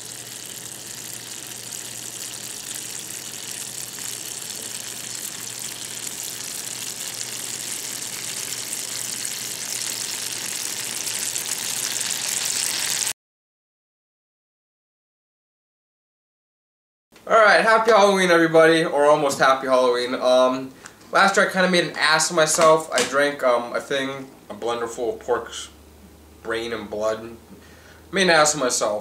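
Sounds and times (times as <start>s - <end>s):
syrup boiling: 0.0s - 13.1s.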